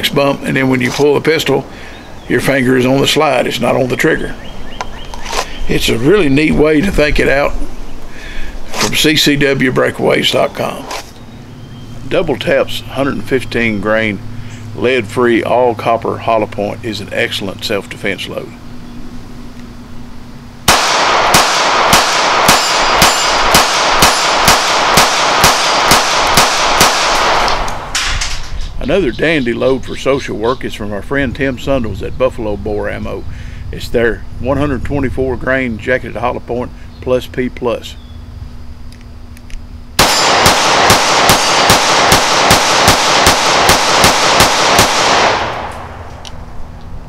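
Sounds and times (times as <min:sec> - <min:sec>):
pistol shots: 0:20.7 - 0:28.3, 0:40.0 - 0:46.1.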